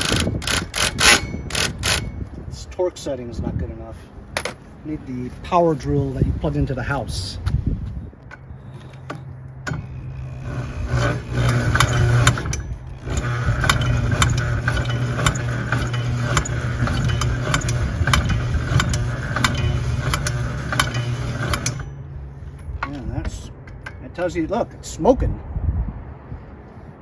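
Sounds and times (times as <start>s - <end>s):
electric drill cranking engine: 0.0s - 2.2s, 8.5s - 22.0s.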